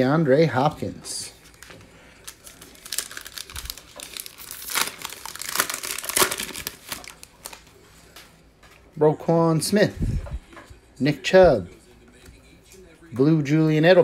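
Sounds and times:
foil wrapper crinkling: 0:01.2 - 0:07.8.

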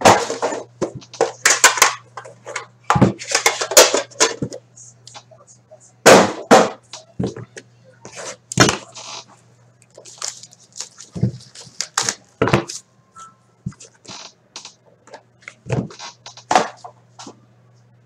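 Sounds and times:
steady low hum: 0:00.0 - 0:18.0
plastic wrap tearing and crinkling: 0:09.8 - 0:12.4.

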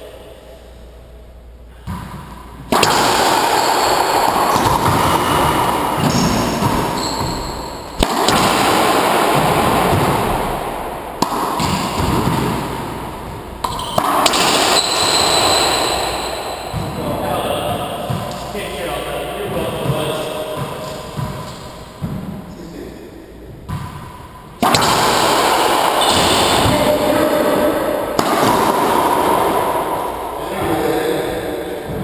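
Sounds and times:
racquetball striking racquets and walls: 0:01.7 - 0:22.6, 0:23.2 - 0:32.0
court shoes squeaking: 0:01.9 - 0:08.6, 0:13.3 - 0:18.6, 0:19.3 - 0:22.5, 0:23.6 - 0:27.4.

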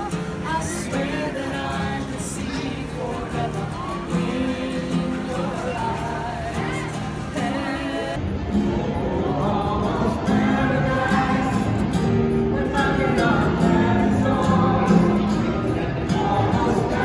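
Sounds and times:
woman singing: 0:00.0 - 0:08.2
acoustic guitar: 0:00.0 - 0:17.0.

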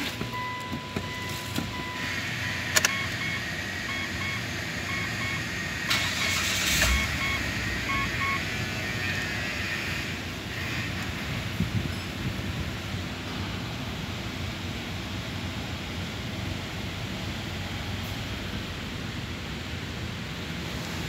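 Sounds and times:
warning chime beeping: 0:00.0 - 0:08.5
engine cranking and starting: 0:05.0 - 0:08.1.

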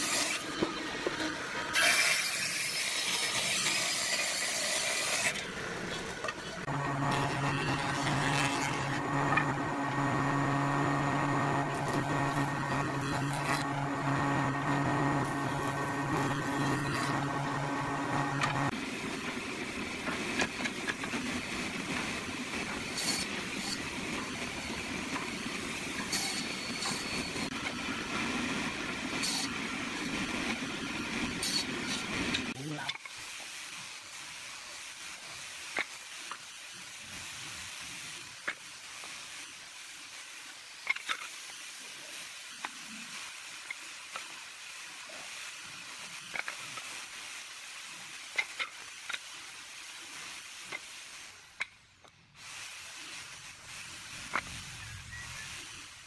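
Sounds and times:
table saw running: 0:01.9 - 0:18.7, 0:25.9 - 0:28.4.

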